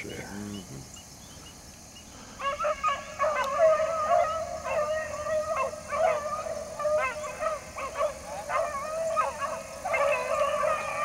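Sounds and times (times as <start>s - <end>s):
hounds baying: 2.4s - 11.0s.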